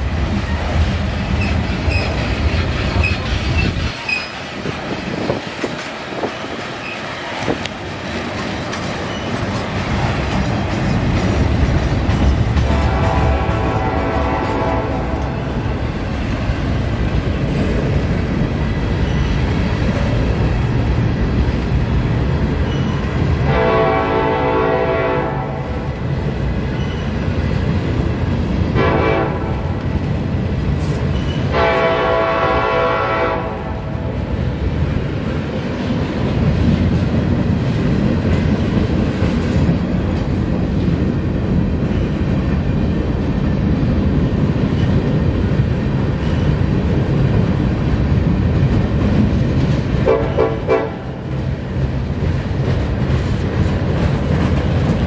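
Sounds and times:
train rumble and rail clatter: 0.0s - 55.0s
locomotive air horn: 12.6s - 15.4s, 23.4s - 25.8s, 28.8s - 29.7s, 31.5s - 34.0s, 50.0s - 51.1s.

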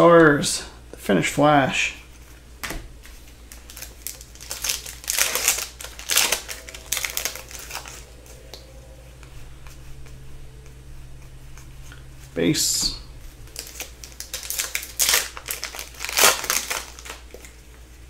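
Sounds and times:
foil wrapper crinkling: 3.0s - 8.1s, 13.4s - 17.7s.

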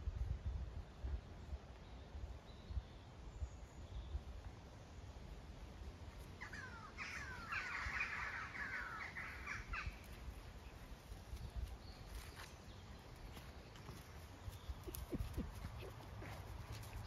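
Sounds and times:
wind rumble on microphone: 0.0s - 6.4s, 9.2s - 17.0s
harsh crow-like bird calls: 6.4s - 10.1s.

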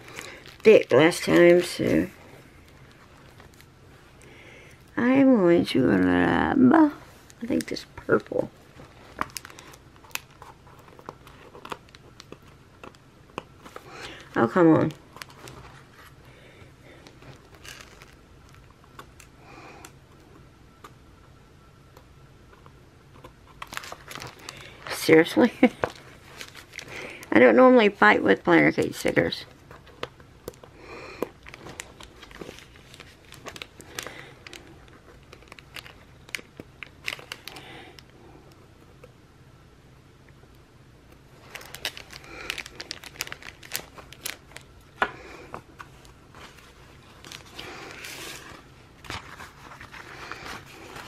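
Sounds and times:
stickers peeling rustles: 41.4s - 51.0s.

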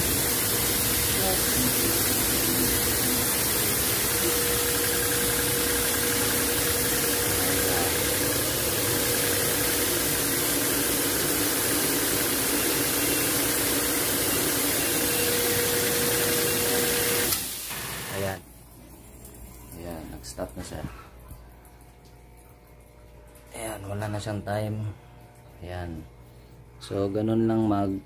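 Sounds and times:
pressure washer motor humming: 0.0s - 18.4s
water spraying: 0.0s - 18.4s.

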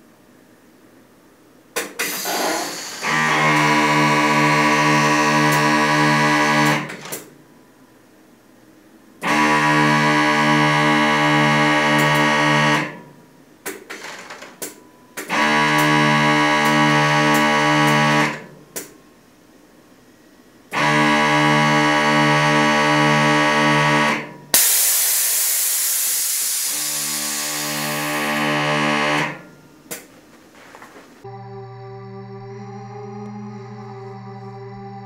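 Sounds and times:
air suspension hissing: 2.0s - 3.2s
loud held horn chords: 31.2s - 35.0s.

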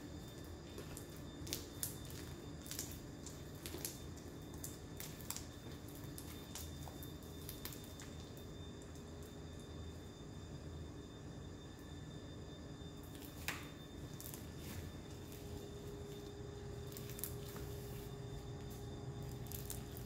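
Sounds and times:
slime squishing and popping: 0.2s - 8.4s, 19.3s - 20.0s.

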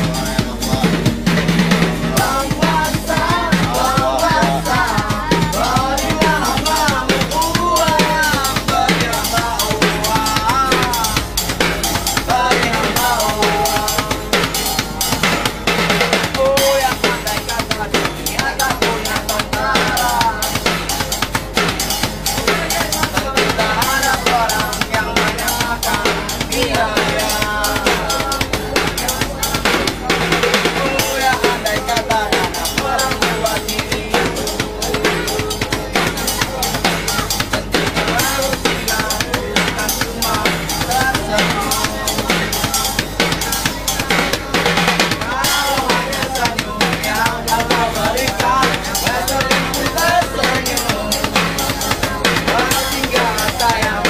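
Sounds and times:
drum beating busy rhythm: 0.0s - 54.0s
person singing: 0.0s - 54.0s
wavering melody: 0.0s - 54.0s.

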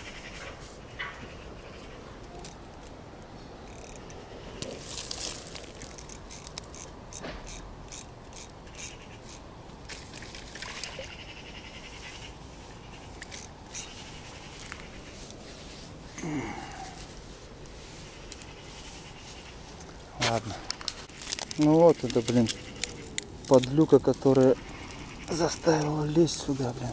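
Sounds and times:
fishing reel ratcheting ticks: 3.7s - 4.2s, 5.9s - 9.4s, 13.2s - 13.9s
plants snapping and rustling underfoot: 4.6s - 7.4s, 19.7s - 26.9s.

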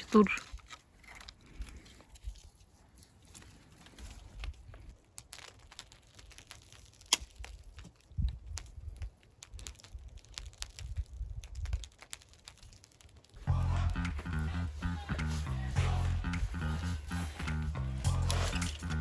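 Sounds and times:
hail ticking on tarp: 4.4s - 19.0s.

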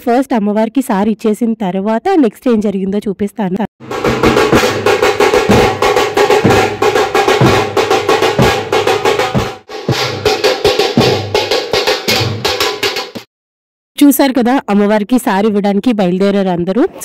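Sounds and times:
deep drum beat: 3.8s - 13.3s
fast loud drum strokes: 3.8s - 13.3s.

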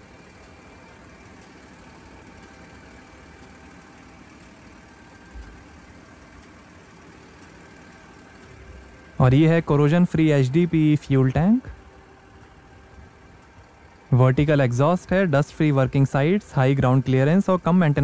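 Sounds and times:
engine idling: 0.0s - 18.0s
faint ticking: 0.0s - 18.0s.

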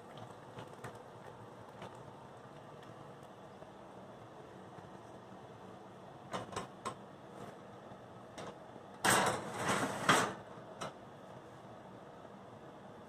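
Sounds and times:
oven rack scraping rattle: 9.0s - 10.4s.

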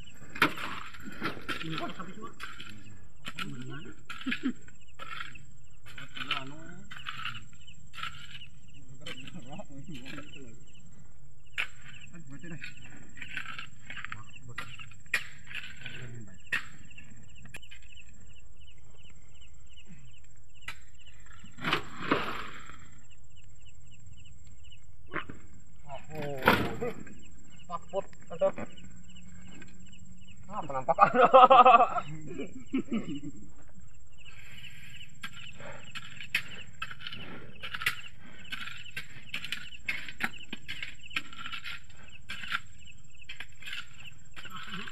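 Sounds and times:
hoes scraping gravelly soil: 0.0s - 10.8s, 11.5s - 24.3s, 33.4s - 44.9s
insects chirping: 0.0s - 44.9s.

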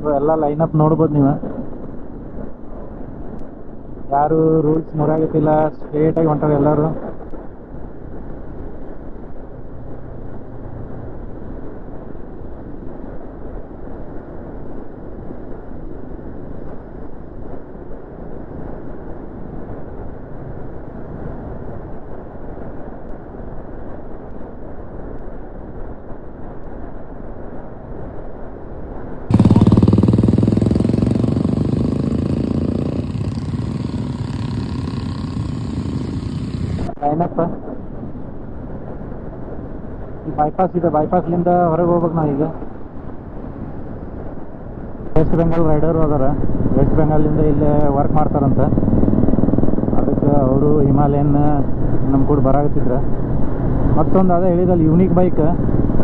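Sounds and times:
road and wind noise: 0.0s - 56.0s
motorcycle engine running: 29.3s - 37.0s.

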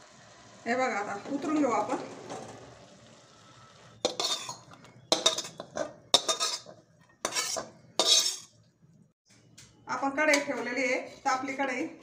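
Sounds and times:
spatula scraping metal pan: 4.0s - 8.6s.

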